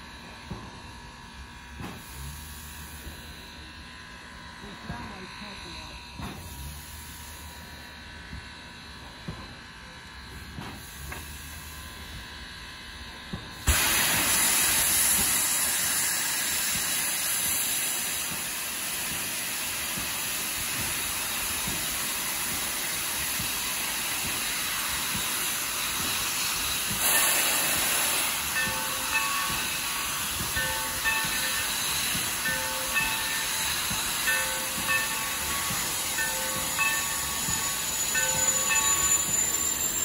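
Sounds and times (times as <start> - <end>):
steam hissing: 10.3 - 12.2, 13.5 - 40.0.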